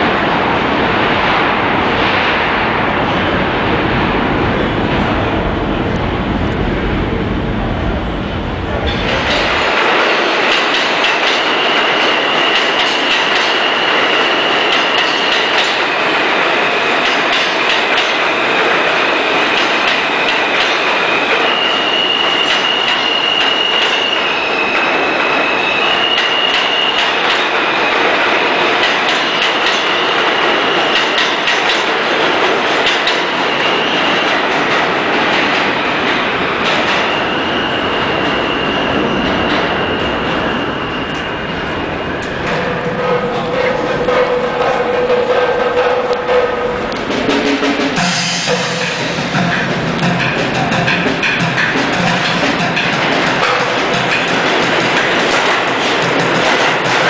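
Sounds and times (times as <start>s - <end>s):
subway train wheel and rail noise: 0.0s - 57.0s
rail joints clicking: 8.7s - 37.2s, 42.2s - 57.0s
wheels squealing: 18.4s - 31.2s.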